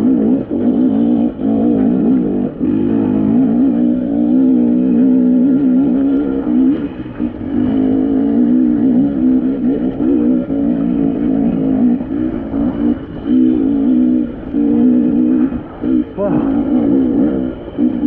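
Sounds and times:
dirt bike engine revving: 0:00.0 - 0:18.0.

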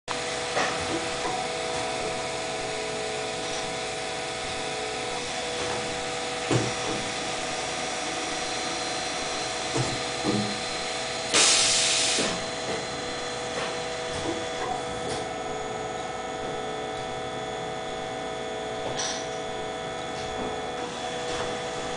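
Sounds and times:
electric motor humming: 0:00.1 - 0:21.9
loud hiss: 0:11.3 - 0:12.4.

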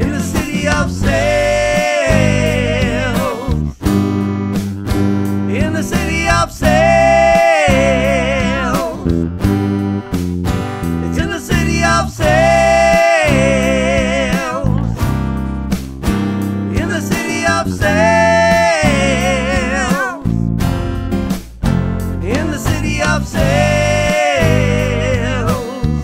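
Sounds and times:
person singing with vibrato: 0:00.0 - 0:03.7, 0:05.5 - 0:09.2, 0:11.0 - 0:15.0, 0:16.7 - 0:20.3, 0:22.2 - 0:26.0
strummed acoustic guitar: 0:00.0 - 0:26.0.

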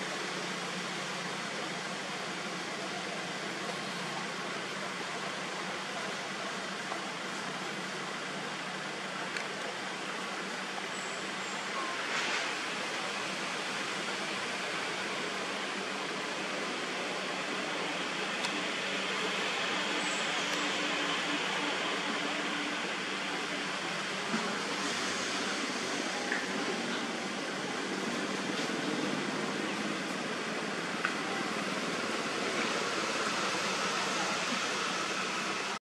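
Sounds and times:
outdoor background hiss: 0:00.0 - 0:35.8.

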